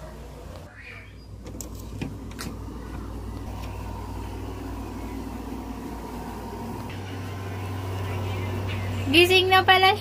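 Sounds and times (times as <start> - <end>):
machine humming: 0.0 - 10.0.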